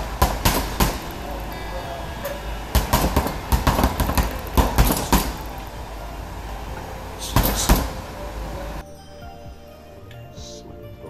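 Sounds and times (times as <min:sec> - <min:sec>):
room noise hiss: 0:00.0 - 0:08.8.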